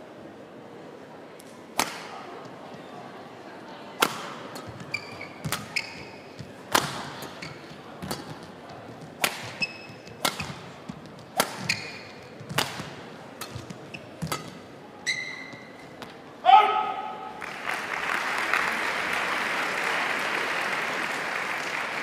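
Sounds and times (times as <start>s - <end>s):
racket striking shuttlecock: 1.8s - 2.4s, 4.0s - 16.2s
shoes squeaking on court floor: 4.4s - 16.2s.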